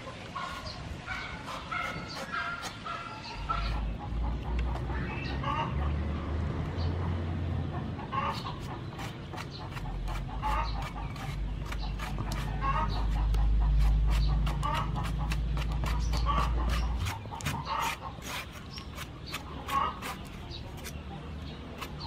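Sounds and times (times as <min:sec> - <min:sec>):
cleaver knocking and scraping: 0:08.6 - 0:22.0.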